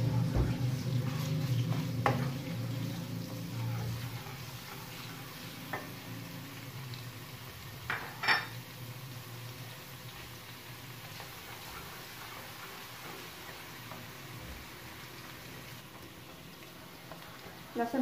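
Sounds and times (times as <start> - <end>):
garlic paste sizzling in oil: 0.0 - 18.0
wooden spatula scraping pan: 0.1 - 6.0.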